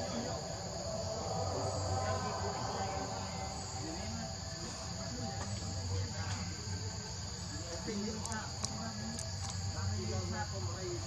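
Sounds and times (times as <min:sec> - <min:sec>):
low rumble: 0:00.0 - 0:04.4
high-pitched insect chorus: 0:00.0 - 0:11.0.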